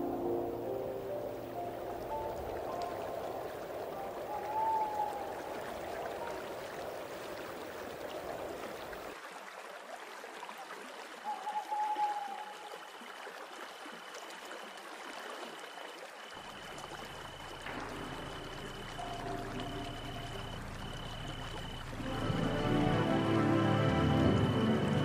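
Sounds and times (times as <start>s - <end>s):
soft music: 0.0s - 6.7s, 16.8s - 25.0s
high chirping of night creatures: 0.0s - 8.6s, 11.3s - 13.0s, 16.3s - 25.0s
waterfall rushing: 16.7s - 25.0s.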